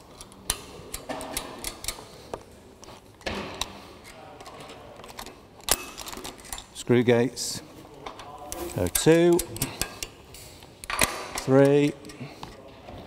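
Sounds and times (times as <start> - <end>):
metal karabiners clicking and clinking: 0.0 - 2.1, 4.0 - 6.8, 8.0 - 12.7.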